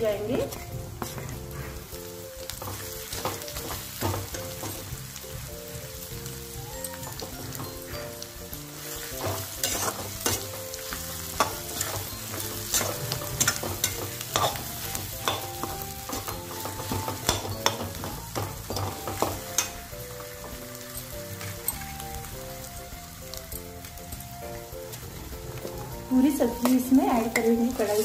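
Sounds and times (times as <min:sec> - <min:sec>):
food frying: 0:00.0 - 0:28.0
metal skimmer scraping a pan: 0:08.8 - 0:10.6, 0:11.4 - 0:18.1.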